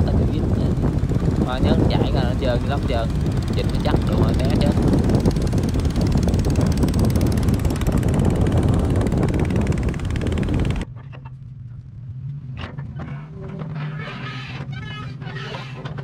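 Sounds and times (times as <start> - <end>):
large engine running hard: 0.0 - 10.9.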